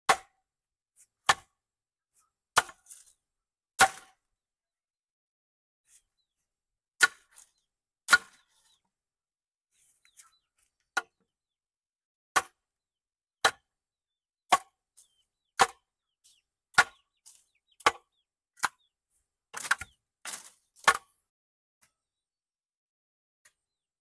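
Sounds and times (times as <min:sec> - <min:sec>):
hand tool striking wood: 0:00.1 - 0:00.4, 0:01.3 - 0:01.5, 0:02.6 - 0:03.0, 0:03.8 - 0:04.2, 0:07.0 - 0:08.5, 0:14.5 - 0:14.8, 0:15.6 - 0:15.8, 0:16.7 - 0:18.8, 0:19.5 - 0:21.2.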